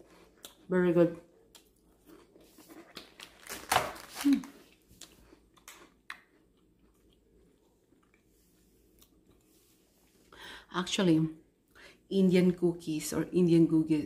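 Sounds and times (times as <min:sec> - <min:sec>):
person chewing crackers: 0:00.0 - 0:00.7, 0:01.3 - 0:09.6.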